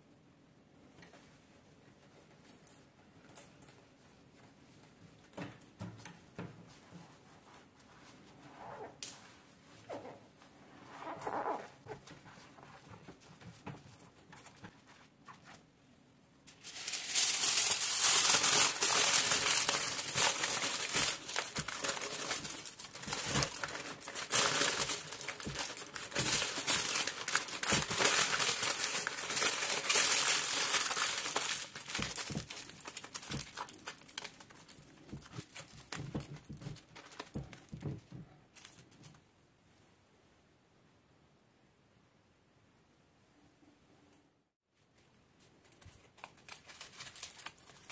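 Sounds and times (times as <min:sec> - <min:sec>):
aluminium foil crinkling: 0:16.5 - 0:39.2, 0:45.6 - 0:47.9.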